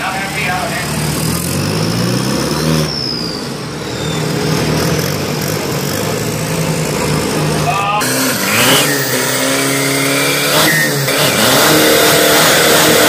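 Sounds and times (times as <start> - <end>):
truck engine idling: 0.0 - 11.6
faint falling whistle: 2.8 - 4.3.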